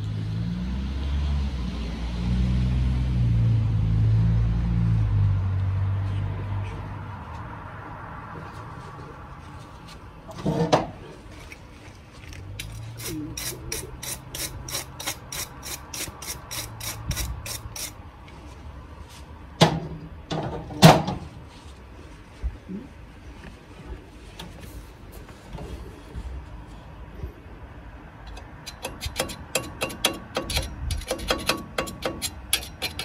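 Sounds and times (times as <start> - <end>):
sharp ratchet-like clicks: 12.6 - 18.0, 28.3 - 33.0.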